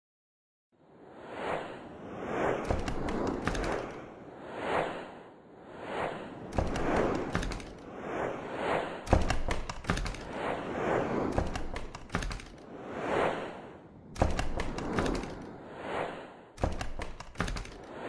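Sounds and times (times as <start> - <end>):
noisy whooshes: 0.9 - 18.0
sharp thuds and clicks: 6.5 - 7.8, 9.1 - 10.4, 11.3 - 12.6, 14.2 - 15.5, 16.6 - 17.9.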